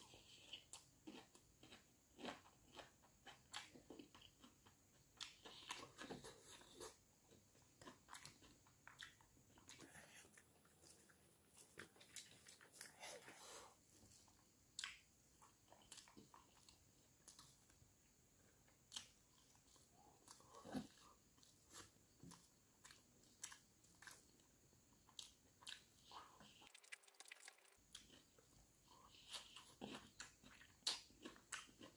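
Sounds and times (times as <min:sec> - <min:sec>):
chewing: 0:00.1 - 0:31.9
fingers mixing rice: 0:26.6 - 0:27.8.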